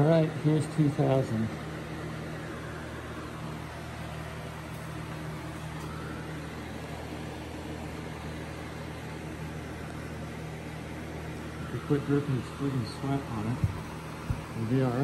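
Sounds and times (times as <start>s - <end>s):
electric motor humming: 8.0s - 15.0s.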